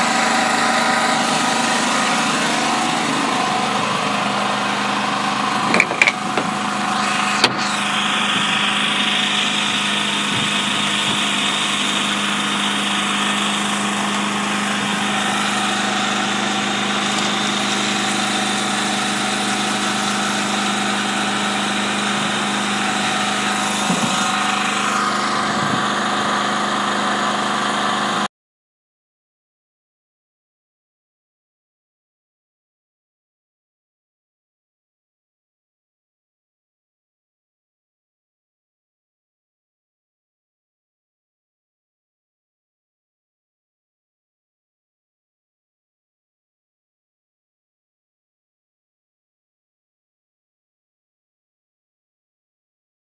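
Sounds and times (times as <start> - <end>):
diesel engine idling: 0.0 - 28.3.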